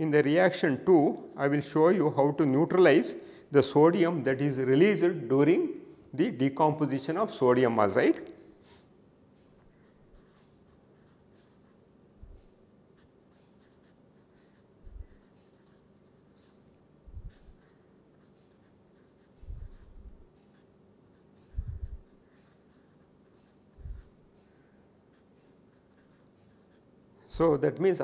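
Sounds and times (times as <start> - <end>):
marker writing on paper: 9.7 - 12.4, 13.0 - 24.2, 25.1 - 26.9
soft low thumps: 21.6 - 22.0.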